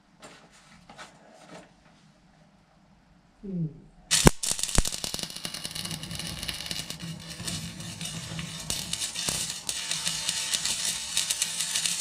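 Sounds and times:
welding arc crackle and hiss: 4.1 - 12.0
welding arc striking cracks: 4.1 - 12.0.

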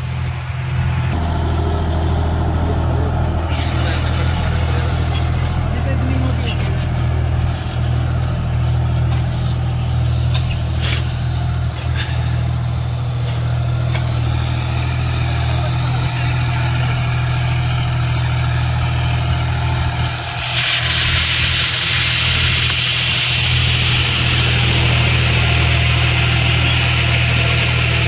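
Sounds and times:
tractor diesel engine running: 0.0 - 28.0
hissing rasp: 10.3 - 14.9, 20.0 - 28.0.

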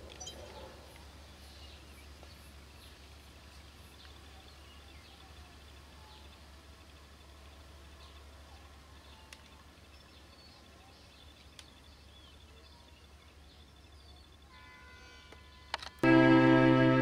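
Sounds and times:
faint steady tones: 0.0 - 17.0
faint bird chirps: 3.8 - 15.7
low hum: 16.0 - 17.0.

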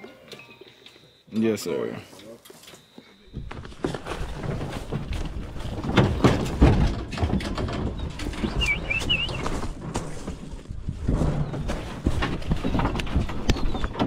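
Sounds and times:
irregular knocks: 3.3 - 14.0
leafy branches rustling and scraping: 3.3 - 14.0
small bird chirping: 8.4 - 9.5.

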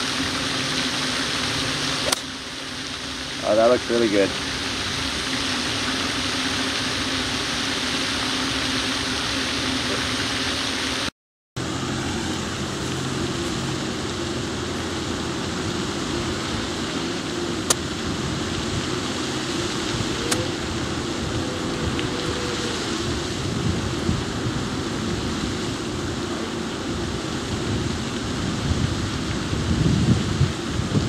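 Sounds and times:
low hum: 0.0 - 31.0
golf club striking ball: 2.0 - 2.3, 17.7 - 17.9.

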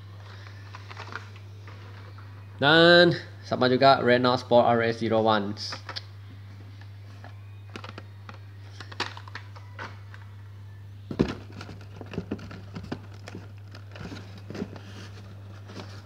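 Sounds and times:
packaging clicks and crinkles: 0.2 - 2.3, 6.8 - 10.3, 11.1 - 16.0.

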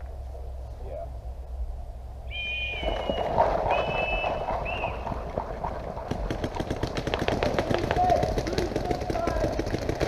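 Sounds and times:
running footsteps: 2.8 - 10.0.

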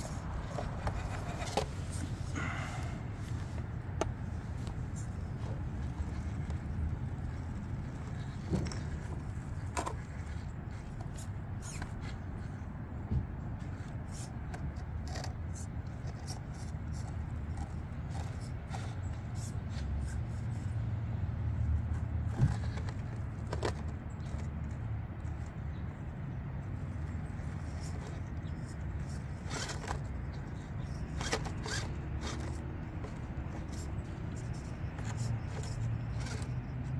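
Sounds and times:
tyres scraping on stone: 0.0 - 12.2, 27.0 - 36.9.

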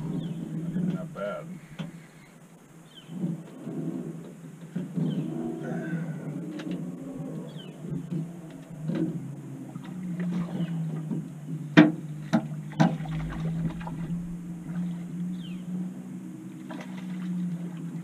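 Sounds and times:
boat motor humming: 0.0 - 18.0
sharp knocks on a boat: 10.4 - 14.2.

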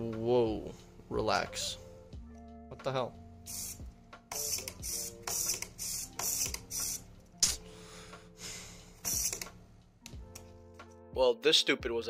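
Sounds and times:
faint background music: 0.0 - 12.0
servo buzzing: 3.5 - 7.1.

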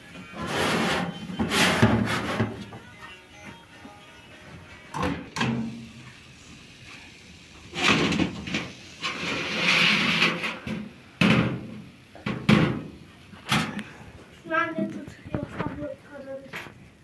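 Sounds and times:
baking pan scraping on oven rack: 0.4 - 2.6, 7.7 - 10.6.

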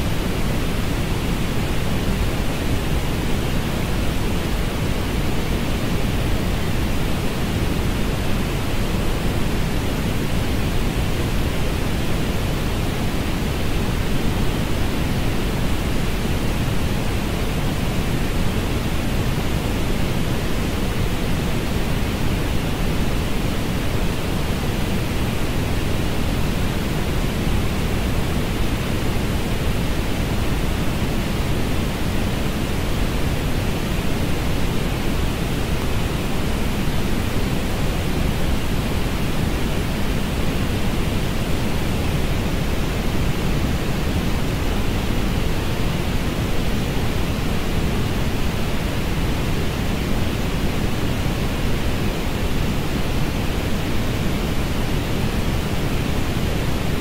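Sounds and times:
steady synthetic noise hiss: 0.0 - 57.0.

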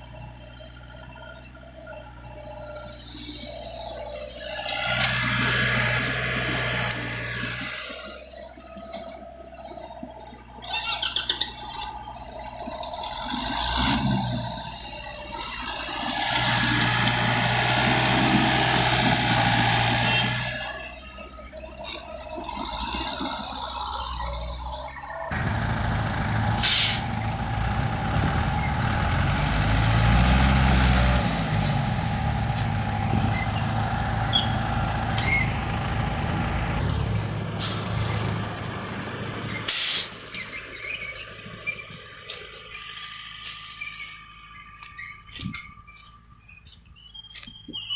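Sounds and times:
diesel engines running: 0.0 - 47.9
short sharp hisses: 39.7 - 40.2.

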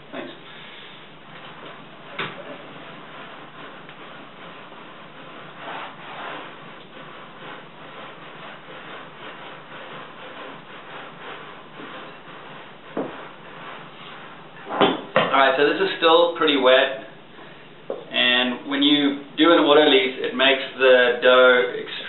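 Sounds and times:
spatula scraping dough in glass bowl: 1.6 - 14.7.

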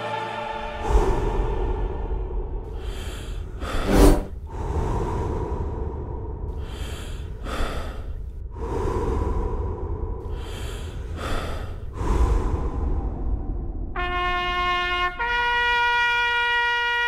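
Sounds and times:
heavy breathing: 0.8 - 13.8.

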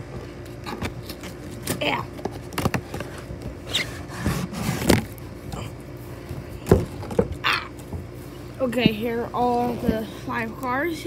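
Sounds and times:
cardboard scraping and rustling: 0.5 - 5.2, 8.7 - 10.5.

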